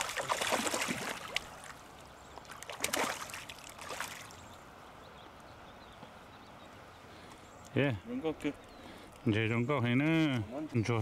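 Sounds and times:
fish splashing in water: 0.0s - 1.8s, 2.4s - 4.4s.

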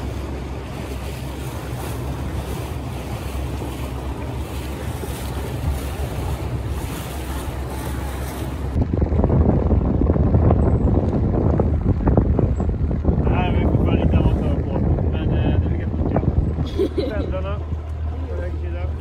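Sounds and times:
boat engine hum: 0.0s - 19.0s
water rushing along hull: 0.0s - 19.0s
wind buffeting microphone: 0.0s - 19.0s
loud rumble: 8.6s - 19.0s.

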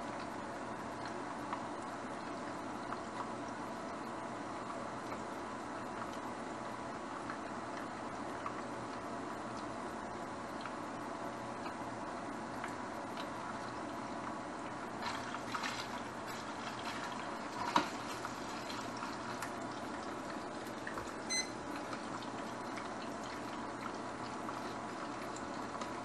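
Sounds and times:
water bubbling at a boil: 0.0s - 26.0s
short electronic beep: 21.3s - 21.6s.

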